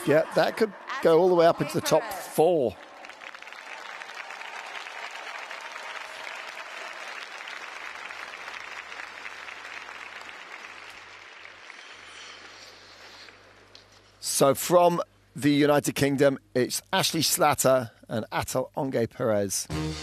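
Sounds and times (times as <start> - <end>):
crowd applauding: 1.8 - 12.5.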